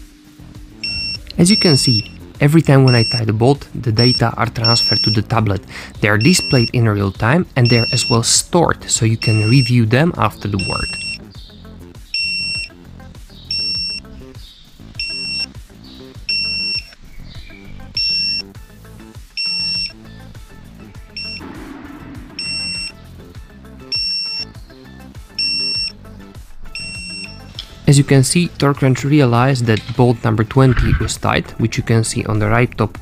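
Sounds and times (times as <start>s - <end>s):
background music: 0.0s - 33.0s
torque wrench short high beeps: 0.8s - 2.1s, 2.9s - 3.2s, 4.0s - 5.2s, 6.2s - 6.7s, 7.6s - 8.2s, 9.2s - 9.8s, 10.6s - 11.2s, 13.5s - 14.0s, 15.0s - 15.5s, 18.0s - 18.4s, 19.4s - 19.9s, 21.2s - 21.5s, 22.4s - 23.0s, 23.9s - 24.4s, 25.4s - 25.9s, 26.8s - 27.4s.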